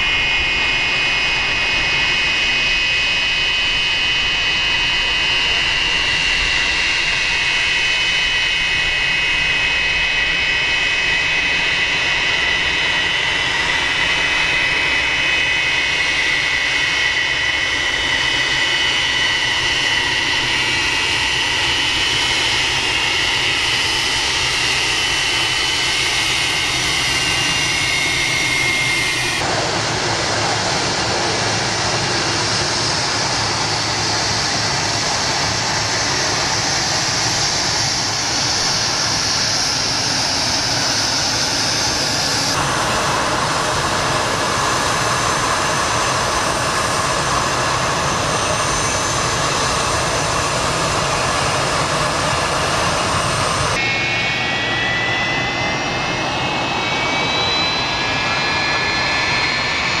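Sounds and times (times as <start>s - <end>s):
jet engines rumbling and hissing: 0.0s - 60.0s
jet engines whining: 0.0s - 60.0s.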